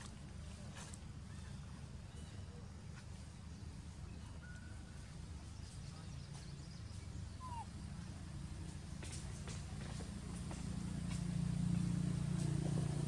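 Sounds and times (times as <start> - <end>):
short bird calls: 7.4 - 7.7.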